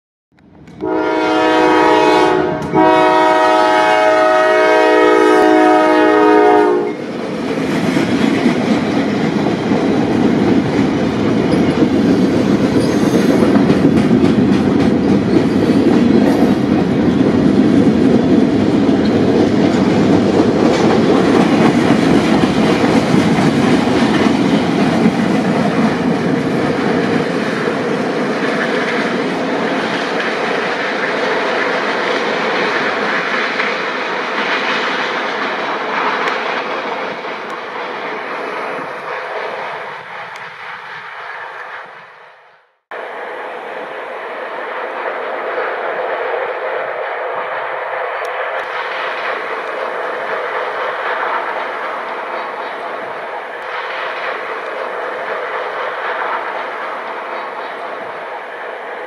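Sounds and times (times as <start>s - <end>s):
train wheels rumbling on rails: 0.4s - 59.0s
locomotive air horn: 0.8s - 7.0s.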